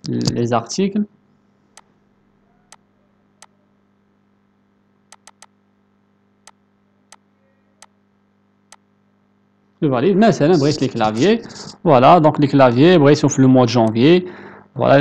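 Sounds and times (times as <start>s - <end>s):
faint steady hum: 0.0s - 15.0s
computer mouse clicking: 5.1s - 5.5s.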